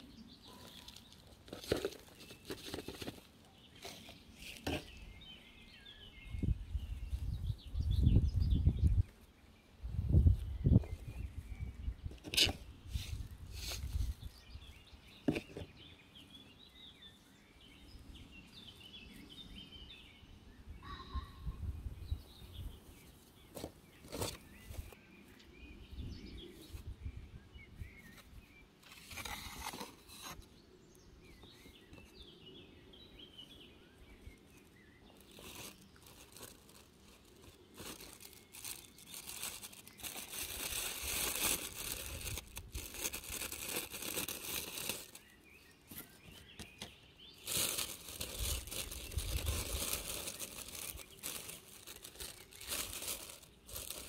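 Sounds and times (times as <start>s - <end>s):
hands rustling potting soil: 0.0s - 5.8s, 10.3s - 15.9s, 34.1s - 54.0s
small birds chirping: 0.0s - 54.0s
plastic bag crinkling: 35.1s - 45.3s, 47.4s - 54.0s.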